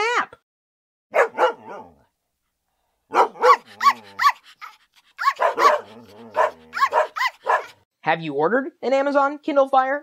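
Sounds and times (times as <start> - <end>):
dog barking: 1.1 - 2.0, 3.1 - 7.8.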